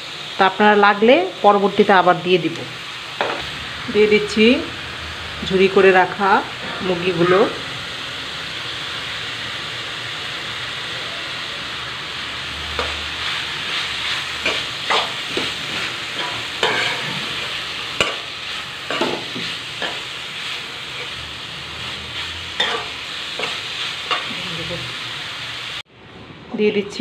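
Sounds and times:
food sizzling in a frying pan: 0.0 - 25.9
metal spoon scraping a pan: 12.7 - 21.2, 21.8 - 24.5.

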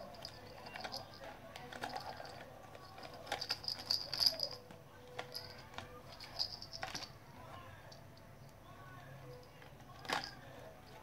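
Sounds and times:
plastic toy clicking and rattling: 0.0 - 7.2, 9.6 - 11.0.

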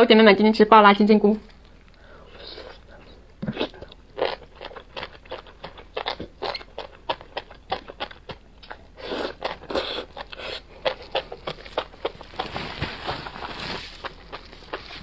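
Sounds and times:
wet biting and chewing: 1.5 - 12.5.

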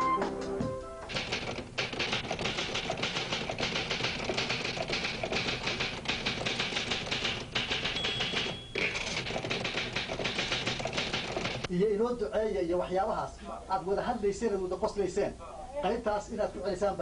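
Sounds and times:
typewriter keys striking: 1.1 - 11.7
typewriter bell ring: 7.0 - 11.5.

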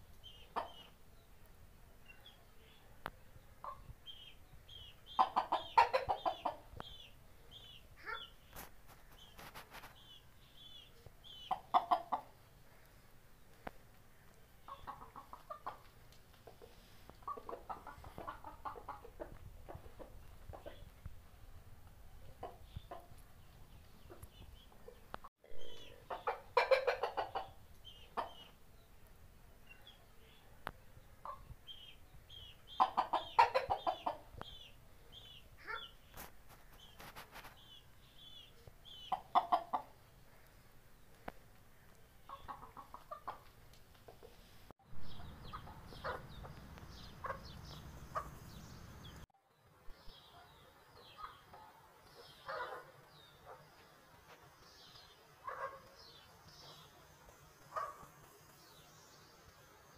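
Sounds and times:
chickens clucking: 0.2 - 1.0, 3.6 - 12.5, 14.2 - 21.1, 22.2 - 28.6, 30.3 - 40.5, 41.1 - 49.3, 50.2 - 58.9
chickens clucking rapidly: 5.1 - 7.0, 11.4 - 12.4, 14.6 - 21.0, 23.9 - 28.6, 32.5 - 34.7, 38.9 - 40.0, 42.2 - 44.4, 45.0 - 49.2, 57.6 - 58.2.

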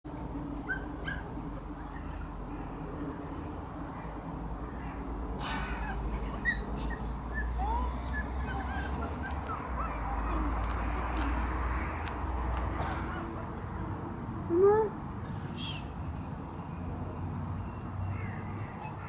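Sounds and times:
puppy whimpering: 5.8 - 10.5, 14.5 - 15.0.

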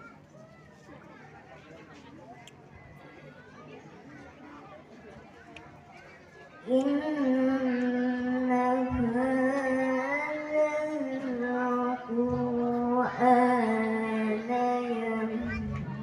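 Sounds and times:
person chanting recitation: 6.7 - 16.0.

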